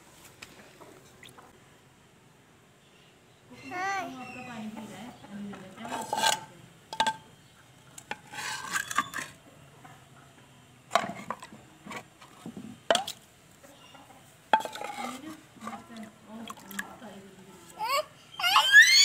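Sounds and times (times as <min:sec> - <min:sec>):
scraping and rustling: 0:05.8 - 0:06.5, 0:08.0 - 0:09.4, 0:14.5 - 0:16.0.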